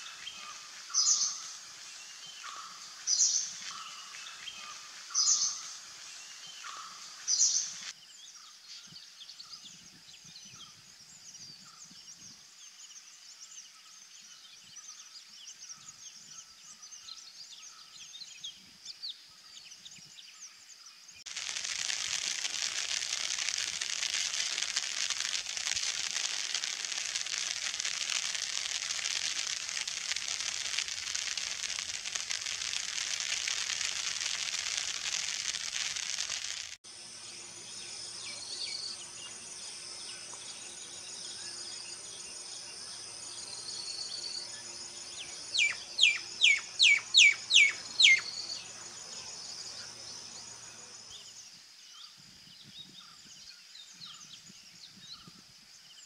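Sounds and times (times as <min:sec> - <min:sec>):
cricket trilling: 0:00.0 - 0:07.9, 0:21.3 - 0:51.5
high-pitched insect chorus: 0:00.0 - 0:56.0.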